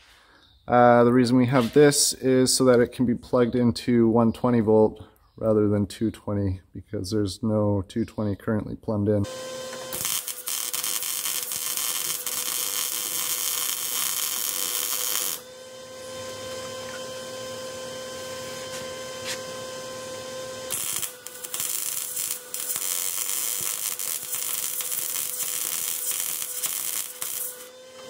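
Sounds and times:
welding arc crackling: 9.3s - 16.4s, 19.2s - 27.7s.

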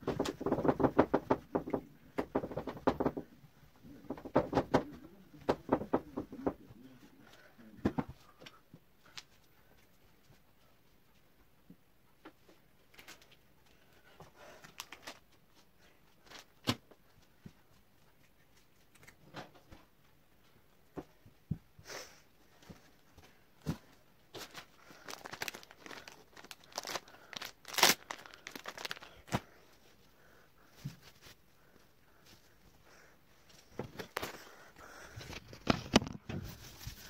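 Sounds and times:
rustling: 22.4s - 37.0s.

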